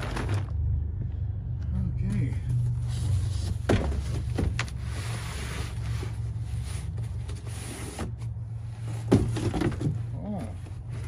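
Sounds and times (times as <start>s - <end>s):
cardboard boxes being shifted: 0.0s - 0.6s, 2.8s - 11.0s
box thumping on truck bed: 9.0s - 10.0s.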